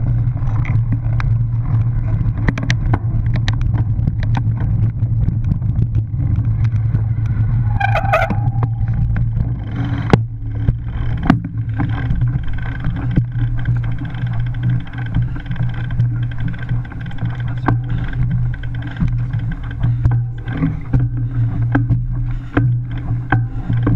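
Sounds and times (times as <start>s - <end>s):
bike tyre and rattle noise: 0.0s - 23.9s
wind rumble on microphone: 0.0s - 23.9s
bike knocking over bumps: 0.5s - 23.9s
high-pitched squeal: 7.5s - 9.2s.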